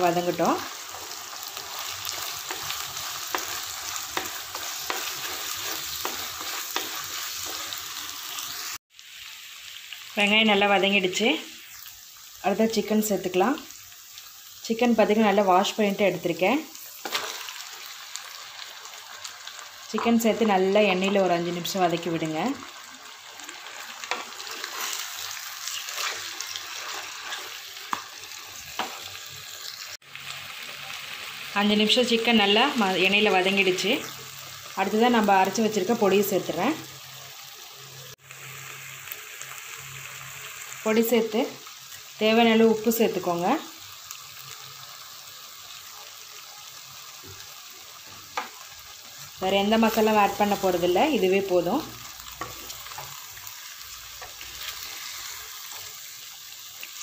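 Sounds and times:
onions sizzling in hot oil: 0:00.0 - 0:57.0
wooden spatula scraping pan: 0:24.1 - 0:28.0.

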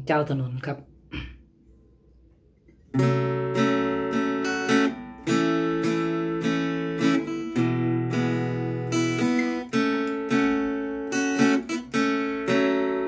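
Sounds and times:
acoustic guitar strumming: 0:02.9 - 0:13.0.

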